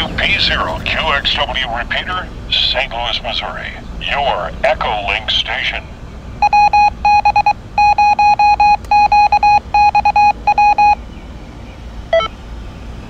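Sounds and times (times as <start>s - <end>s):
morse code beeps from radio: 6.4s - 11.0s, 12.1s - 12.3s
short pitch-stepping beep: 6.4s - 11.0s.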